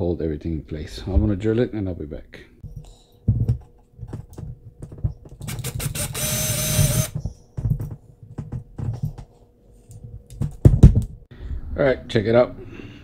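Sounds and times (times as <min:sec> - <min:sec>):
small electric drill whirring: 0:05.4 - 0:07.2.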